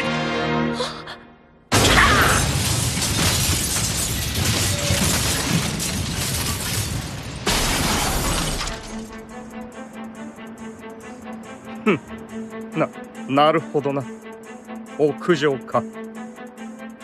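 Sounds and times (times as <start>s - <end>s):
glass shattering: 1.7s - 9.2s
quiet background music: 7.5s - 17.0s.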